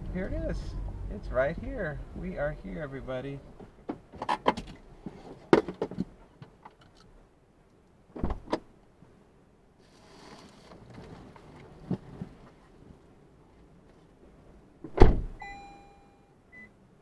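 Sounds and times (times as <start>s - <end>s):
car door thump: 8.2s - 8.7s, 14.8s - 15.4s.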